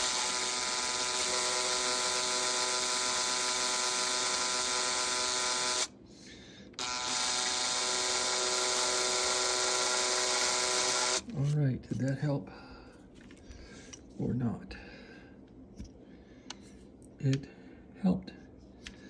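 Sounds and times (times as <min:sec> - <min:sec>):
cordless drill motor whining: 0:00.0 - 0:05.9, 0:06.8 - 0:11.3.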